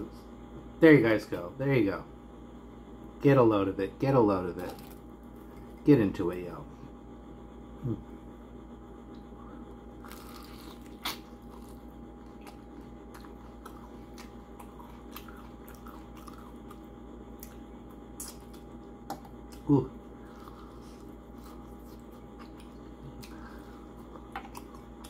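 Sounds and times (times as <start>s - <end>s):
steady low hum: 0.0s - 25.0s
chewing crispy chicken: 10.0s - 18.8s, 19.4s - 25.0s.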